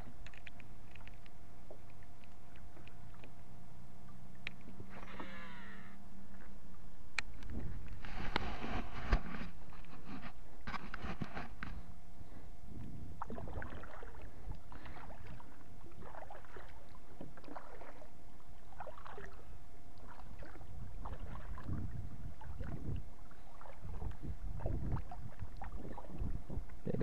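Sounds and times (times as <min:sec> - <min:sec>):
low rumble: 0:11.5 - 0:17.8
paddle splashing in water: 0:13.2 - 0:18.1, 0:18.7 - 0:19.4, 0:20.0 - 0:26.3.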